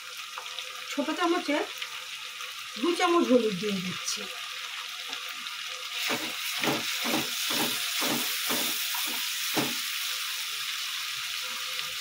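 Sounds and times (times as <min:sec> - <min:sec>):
potatoes sizzling in oil: 0:00.0 - 0:12.0.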